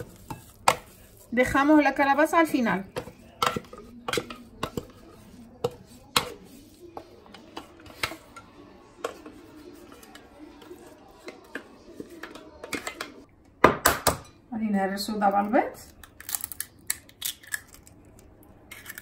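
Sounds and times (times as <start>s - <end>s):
spatula scraping and tapping metal jug: 0.0s - 13.2s.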